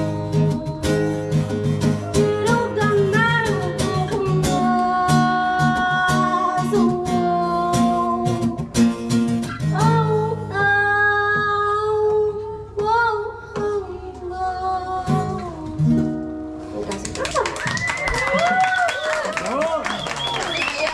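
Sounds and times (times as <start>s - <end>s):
woman singing: 0.0s - 8.8s, 9.6s - 16.1s
strummed acoustic guitar: 0.0s - 17.1s.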